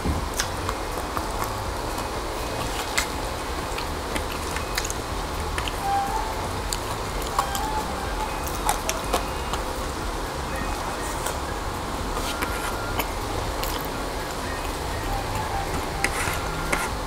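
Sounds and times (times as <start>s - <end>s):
sharp crackles and clicks: 0.0s - 17.0s
steady low hum: 0.0s - 17.0s
person chewing food: 0.3s - 17.0s.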